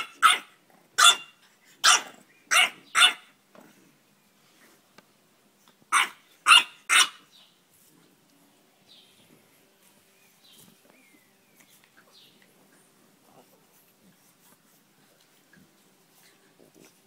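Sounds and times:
dog barking: 0:00.0 - 0:03.3, 0:05.9 - 0:07.2.

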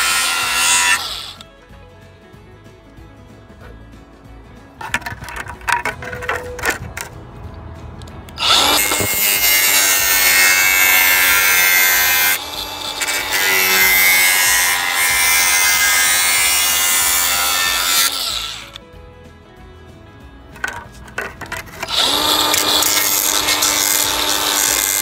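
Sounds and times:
cutting wheel grinding plastic: 0:00.0 - 0:01.5, 0:08.1 - 0:18.8, 0:20.6 - 0:25.0
plastic sheet knocks and clicks: 0:04.8 - 0:07.2.

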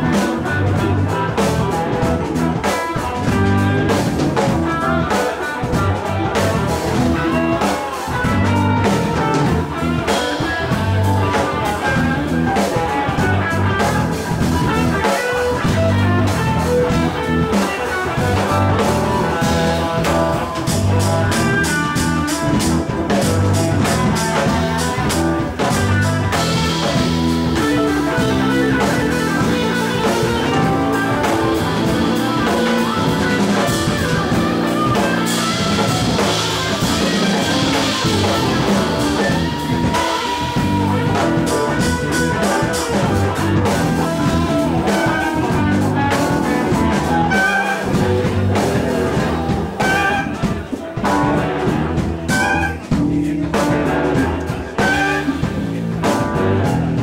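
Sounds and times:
bass line: 0:00.0 - 0:57.0
drum kit: 0:00.0 - 0:57.0
electric guitars: 0:00.0 - 0:57.0
saxophone: 0:00.0 - 0:57.0
cymbals: 0:17.6 - 0:51.3, 0:52.2 - 0:53.3.

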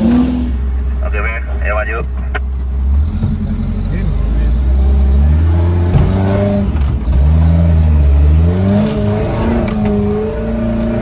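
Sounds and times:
off-road vehicle engine revving: 0:00.0 - 0:01.0, 0:02.4 - 0:11.0.

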